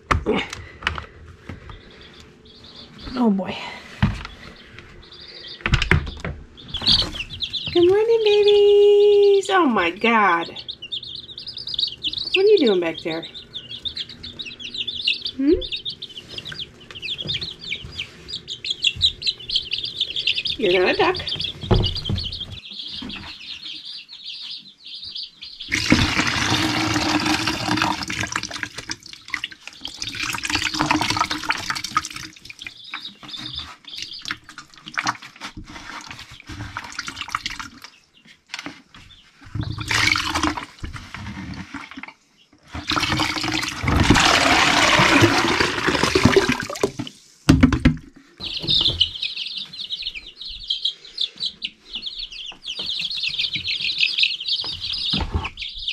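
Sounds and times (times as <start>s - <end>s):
baby chicks peeping: 0.0s - 55.9s
water pouring and splashing: 25.7s - 32.6s, 42.9s - 47.1s.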